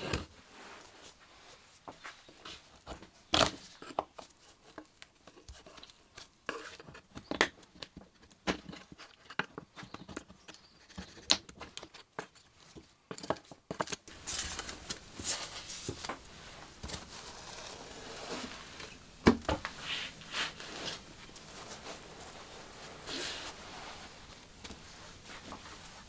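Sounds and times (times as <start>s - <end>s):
fabric rustling and ripping: 14.1s - 19.0s, 19.6s - 26.0s.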